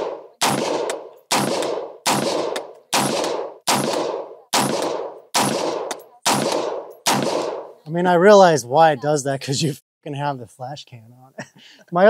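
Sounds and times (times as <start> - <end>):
rifle gunshots echoing: 0.0 - 7.8.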